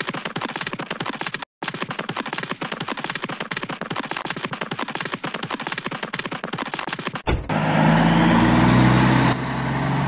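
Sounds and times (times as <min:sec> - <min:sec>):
fast sharp clicks: 0:00.0 - 0:07.3.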